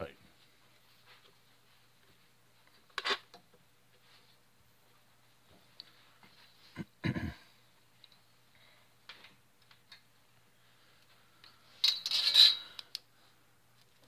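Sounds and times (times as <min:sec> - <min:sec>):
scraping clatter of metal: 0:11.8 - 0:12.8.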